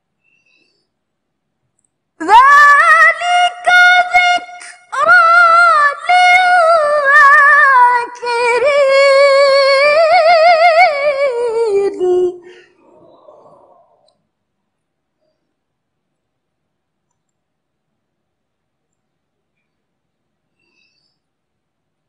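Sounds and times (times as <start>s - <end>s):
woman reciting melodically: 2.2s - 13.0s.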